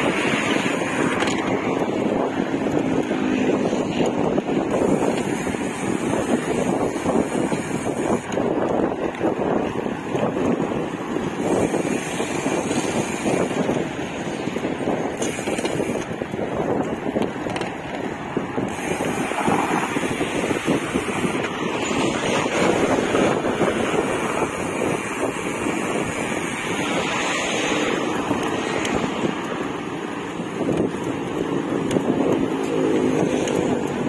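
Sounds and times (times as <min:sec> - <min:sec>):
vehicle and road noise: 0:00.0 - 0:34.0
wind buffeting microphone: 0:00.0 - 0:34.0.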